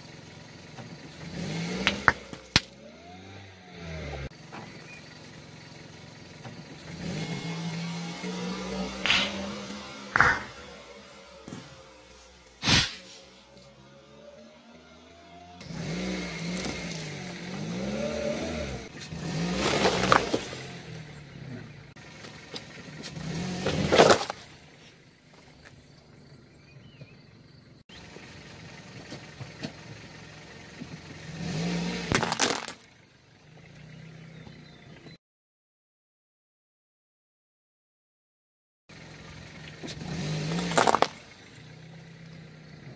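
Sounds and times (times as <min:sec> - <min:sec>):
car engine revving: 0:00.0 - 0:25.1, 0:25.8 - 0:35.2, 0:39.0 - 0:42.9
objects crunching under tyre: 0:00.7 - 0:05.1, 0:15.6 - 0:25.9, 0:31.6 - 0:33.0, 0:39.6 - 0:42.0.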